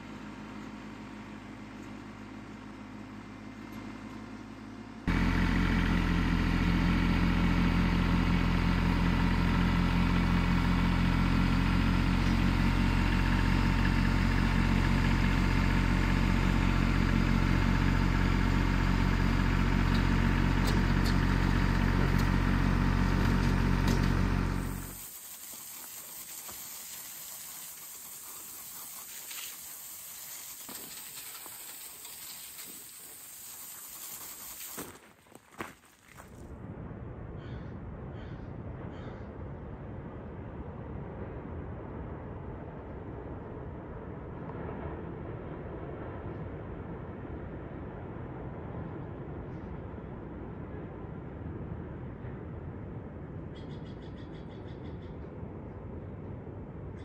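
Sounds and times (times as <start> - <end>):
engine idling: 0.0 - 35.7.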